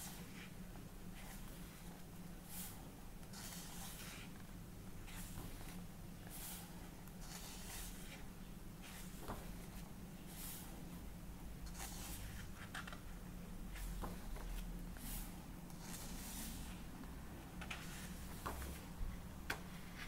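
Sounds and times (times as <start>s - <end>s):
low steady hum: 0.0s - 20.0s
book pages turning: 1.2s - 4.5s, 5.1s - 10.6s, 11.6s - 16.7s, 17.6s - 18.9s.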